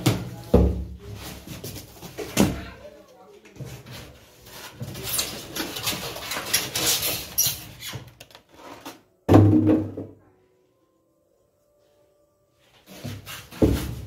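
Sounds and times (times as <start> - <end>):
cardboard rustling and scraping: 0.0 - 2.7, 3.6 - 9.1, 12.7 - 14.0.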